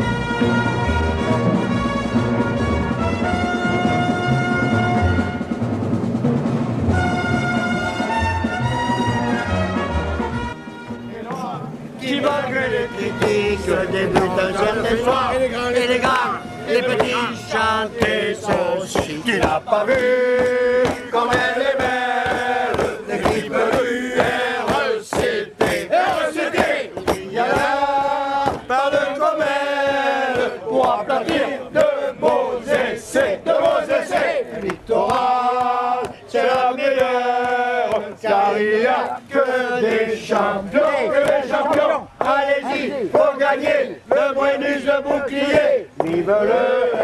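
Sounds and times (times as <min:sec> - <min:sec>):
men chanting in unison: 0:11.2 - 0:47.0
sharp percussive beats: 0:12.7 - 0:38.1.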